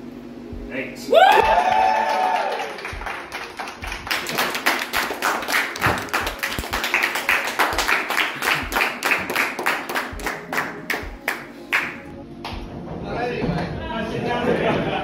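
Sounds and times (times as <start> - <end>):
people clapping: 1.2 - 12.6.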